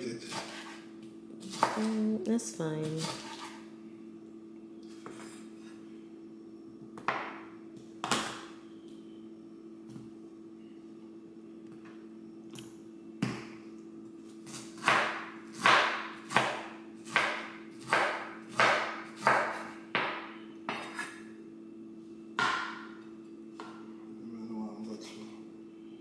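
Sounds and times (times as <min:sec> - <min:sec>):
knife slicing pineapple: 0:00.2 - 0:00.8
low hum: 0:00.8 - 0:14.4.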